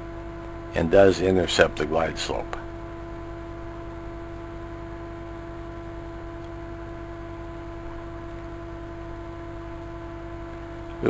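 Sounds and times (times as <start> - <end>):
faint hiss: 0.0 - 2.8
steady mid-pitched hum: 0.0 - 11.0.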